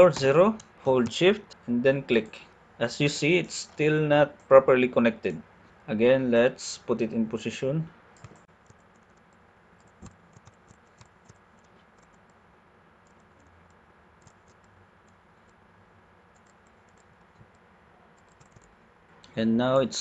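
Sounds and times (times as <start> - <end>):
computer clicks: 8.2 - 12.4, 13.0 - 15.6, 16.3 - 17.6, 18.2 - 19.4.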